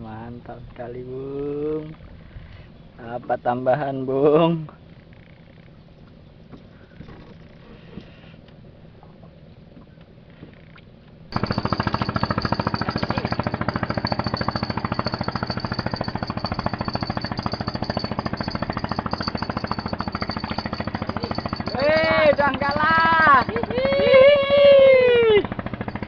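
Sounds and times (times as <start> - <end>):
small engine running: 11.3 - 26.0.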